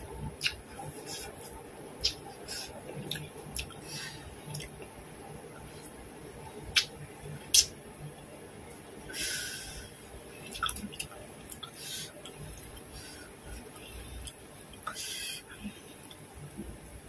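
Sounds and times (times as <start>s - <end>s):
soft chewing: 0.2s - 6.0s, 10.3s - 16.8s
lip smacks and clicks: 0.4s - 1.3s, 2.0s - 2.3s, 6.7s - 7.8s.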